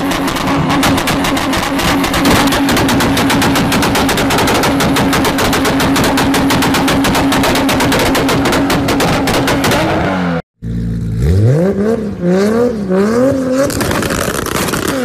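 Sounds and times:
exhaust pops and bangs: 0:00.0 - 0:10.0, 0:13.6 - 0:15.0.

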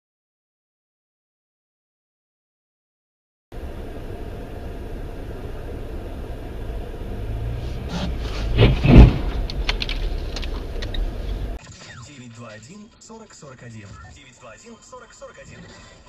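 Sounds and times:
car engine and road noise: 0:03.5 - 0:11.6
loud thump: 0:07.8 - 0:10.7.

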